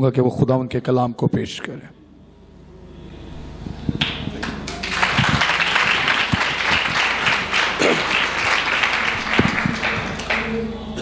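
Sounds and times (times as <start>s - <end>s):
crowd applauding: 4.0s - 11.0s.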